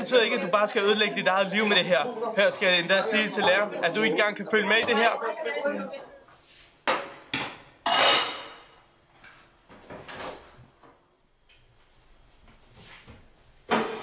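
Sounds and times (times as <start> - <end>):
pan and cupboard clanking: 13.7 - 14.0.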